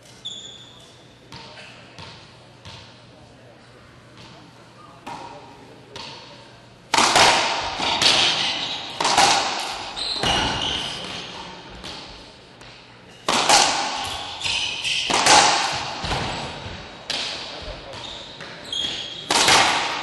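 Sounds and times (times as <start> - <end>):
ball cracking off racquets and walls: 6.9 - 12.1, 13.3 - 20.0
shoes squeaking on hardwood floor: 9.8 - 11.5, 17.9 - 19.3.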